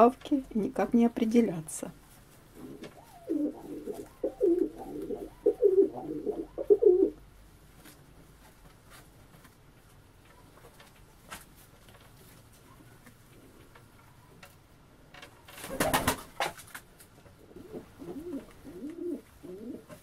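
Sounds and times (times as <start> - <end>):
pigeon cooing: 2.6 - 7.2, 17.4 - 20.0.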